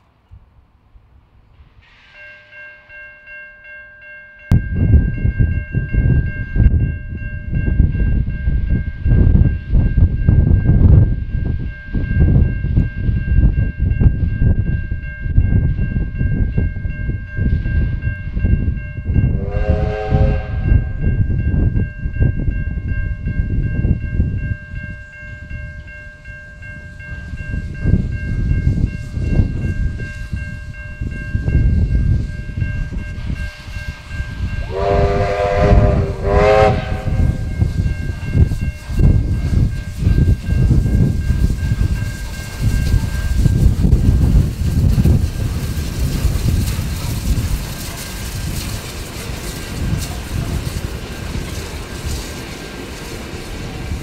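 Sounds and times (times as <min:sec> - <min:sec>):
steam locomotive rumbling past: 0:00.8 - 0:03.4, 0:04.5 - 0:54.0
steam whistle blast: 0:19.4 - 0:21.0, 0:34.6 - 0:37.5.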